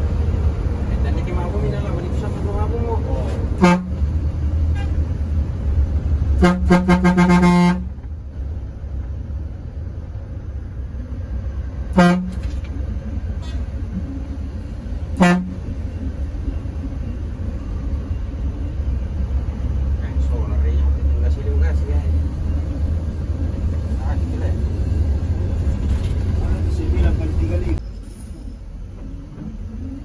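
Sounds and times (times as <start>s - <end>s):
bus engine rumbling: 0.0s - 30.0s
bus horn toots: 3.6s - 4.0s, 4.7s - 5.1s, 6.4s - 8.1s, 11.9s - 12.6s, 15.2s - 15.7s.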